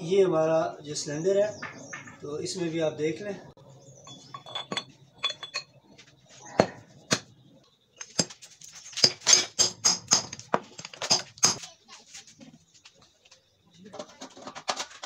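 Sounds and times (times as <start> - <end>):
metal parts knocking and clinking: 1.6 - 2.2, 4.0 - 5.8, 8.0 - 11.6.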